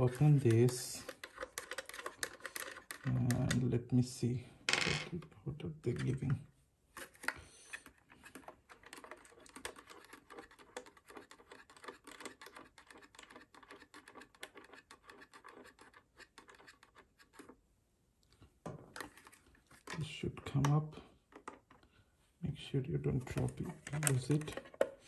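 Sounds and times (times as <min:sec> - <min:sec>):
plastic housing scraping and tapping: 0:00.0 - 0:03.6, 0:07.0 - 0:17.6, 0:18.9 - 0:21.8, 0:23.2 - 0:25.0.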